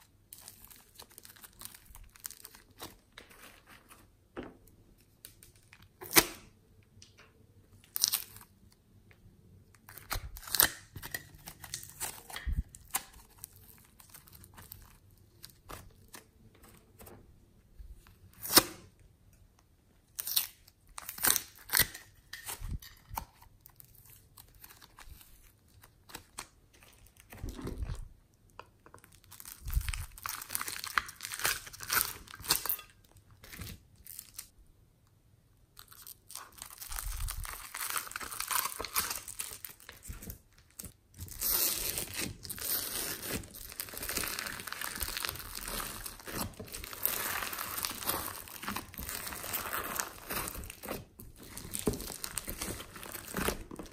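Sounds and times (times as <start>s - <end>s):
slime crackling and popping: 35.8s - 53.9s.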